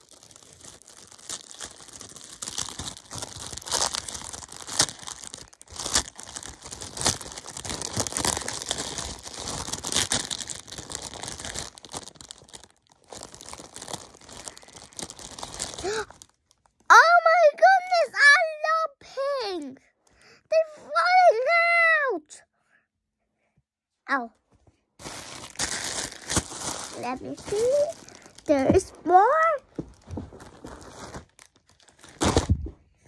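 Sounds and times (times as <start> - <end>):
plastic packaging crinkling: 0.0 - 16.9, 25.0 - 32.7.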